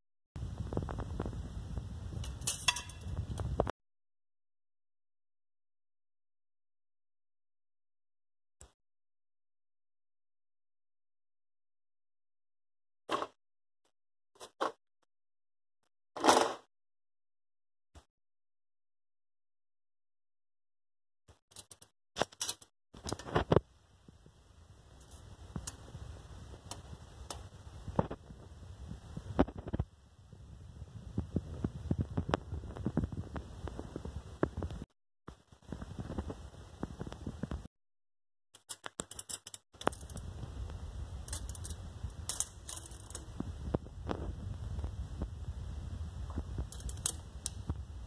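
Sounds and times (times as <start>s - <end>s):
low steady rumble: 0.4s - 3.7s, 23.2s - 37.7s, 39.8s - 48.0s
handling clicks and rubs: 38.6s - 40.3s, 46.7s - 47.6s.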